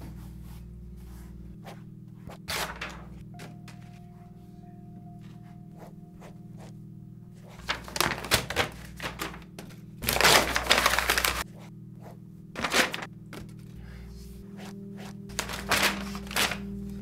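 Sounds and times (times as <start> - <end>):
faint background music: 0.0 - 17.0
paper ball rustling: 0.4 - 4.0, 7.4 - 11.7, 12.6 - 13.8, 14.5 - 17.0
paper crumpling: 7.5 - 11.4, 12.6 - 13.7, 14.6 - 17.0.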